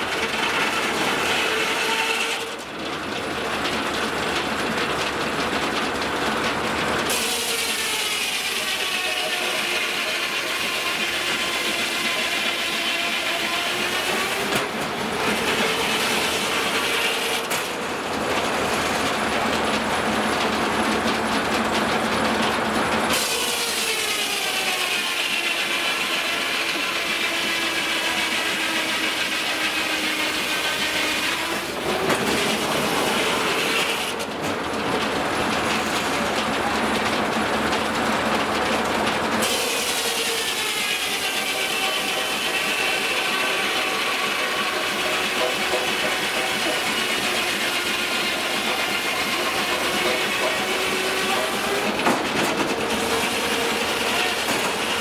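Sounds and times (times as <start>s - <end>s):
saw cutting log: 0.0s - 2.8s, 7.0s - 55.0s
carriage clattering on track: 0.0s - 10.1s, 13.8s - 24.5s, 30.1s - 55.0s
circular saw blade whining: 23.1s - 34.2s, 39.4s - 55.0s.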